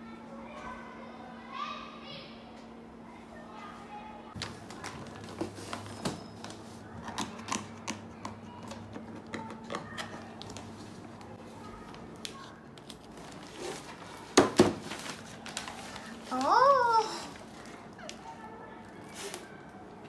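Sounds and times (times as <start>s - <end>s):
wrapping paper crinkling and tearing: 11.6s - 19.8s.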